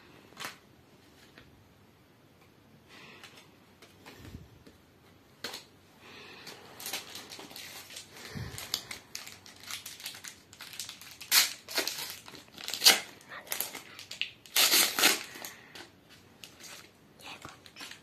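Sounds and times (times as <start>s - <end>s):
cards and binder pages rustling: 6.4s - 18.0s
foil packet tearing open: 6.8s - 16.9s.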